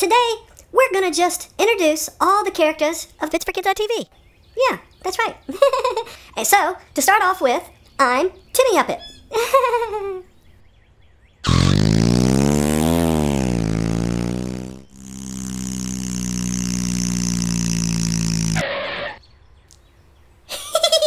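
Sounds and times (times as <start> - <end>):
cartoon truck engine revving: 11.4 - 19.2.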